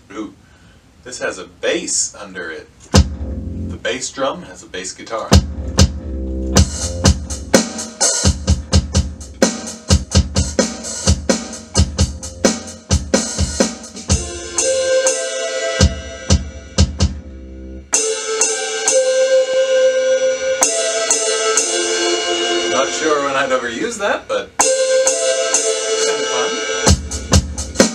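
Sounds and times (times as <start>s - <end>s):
electronic drum kit: 2.8s - 3.8s, 5.2s - 27.9s
bass guitar notes: 2.9s - 4.0s, 5.3s - 18.2s, 18.8s - 27.9s
sustained pitched tones: 19.4s - 27.8s.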